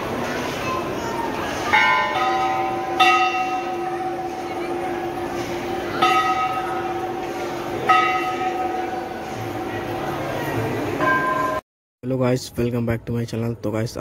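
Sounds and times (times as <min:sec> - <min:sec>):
brass bells clanging: 0:01.7 - 0:11.6.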